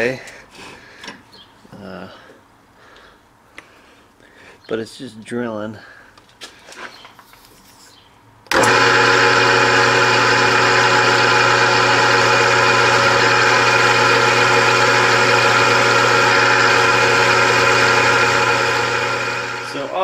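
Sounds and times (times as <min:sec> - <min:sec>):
drill press drilling into metal: 0:08.5 - 0:20.0.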